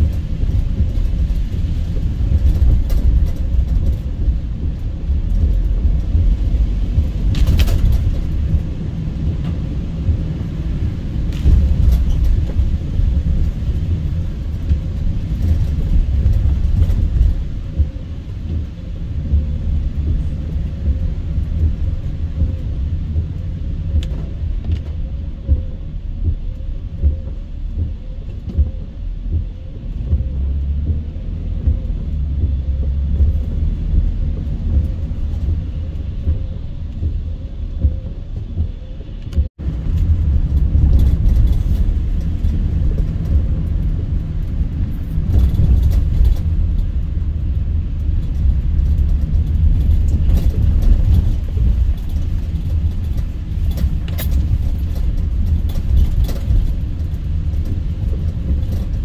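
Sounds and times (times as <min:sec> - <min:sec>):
car road rumble: 0:00.0 - 0:59.0.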